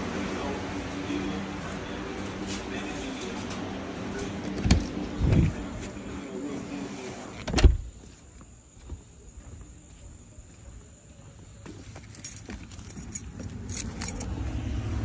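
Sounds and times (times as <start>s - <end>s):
keys jingling: 11.8s - 14.4s.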